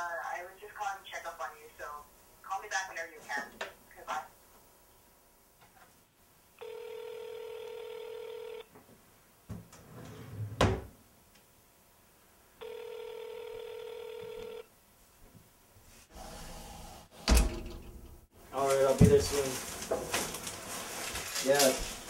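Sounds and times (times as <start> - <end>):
telephone ringing: 6.6 - 8.7, 12.6 - 14.7.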